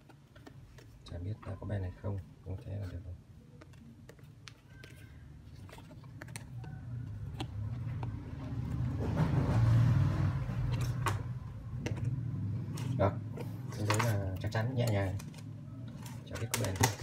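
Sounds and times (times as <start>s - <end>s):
passing vehicle engine hum: 7.6s - 13.8s.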